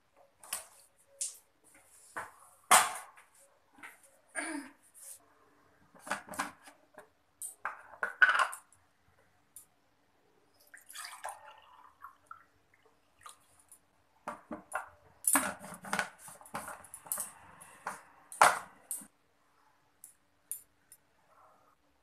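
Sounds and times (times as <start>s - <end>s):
hot water pouring into glass: 10.6s - 13.7s.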